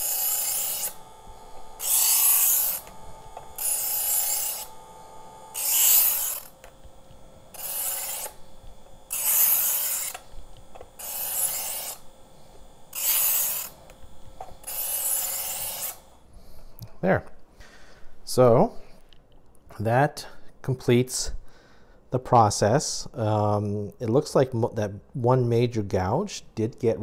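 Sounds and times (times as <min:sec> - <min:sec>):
knife sharpener rasping: 0:00.0 - 0:16.2
motor humming: 0:00.0 - 0:16.6.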